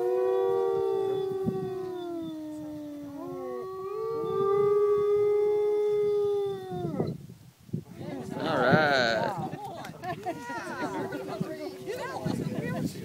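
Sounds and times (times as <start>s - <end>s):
wolves howling: 0.0s - 7.1s.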